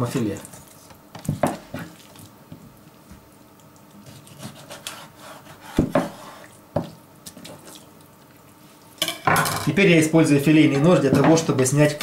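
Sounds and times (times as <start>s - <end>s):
knife cutting fish on wooden board: 4.0s - 6.9s.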